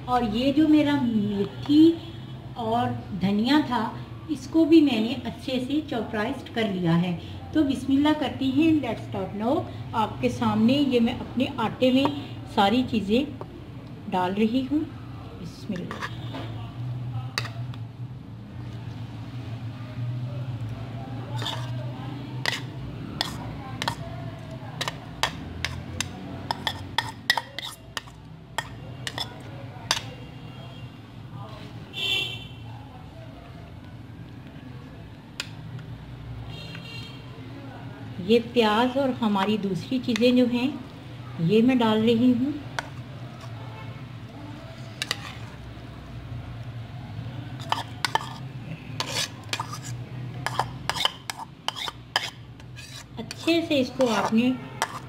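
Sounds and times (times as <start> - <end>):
metal spoon scraping bowls: 15.8 - 16.3, 17.4 - 17.7, 21.3 - 30.2, 44.7 - 45.7, 47.5 - 55.0.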